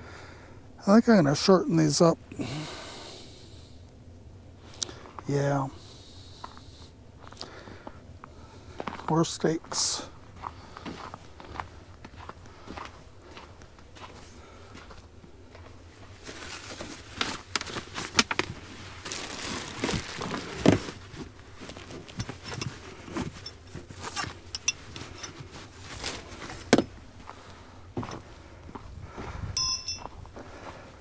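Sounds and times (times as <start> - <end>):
rustling and crinkling of gear: 6.4 - 31.0.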